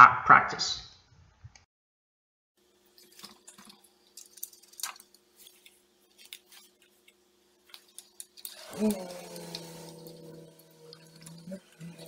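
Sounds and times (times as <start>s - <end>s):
faint steady hum: 2.6s - 12.0s
plastic clicks and wire rustles: 3.0s - 8.6s.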